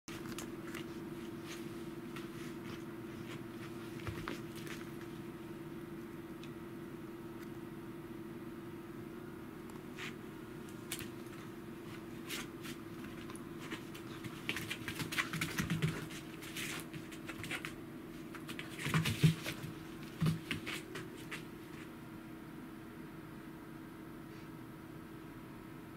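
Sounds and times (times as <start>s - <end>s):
paws scrabbling on wooden floor: 0.1s - 5.2s, 10.0s - 22.0s
low steady hum: 0.1s - 25.9s.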